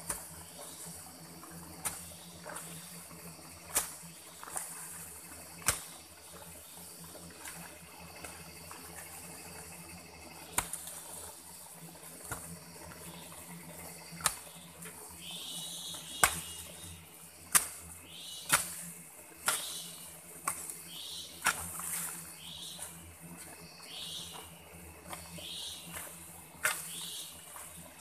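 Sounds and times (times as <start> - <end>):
hoe chopping into earth: 16.2 - 16.6, 17.5 - 17.8, 18.5 - 18.8.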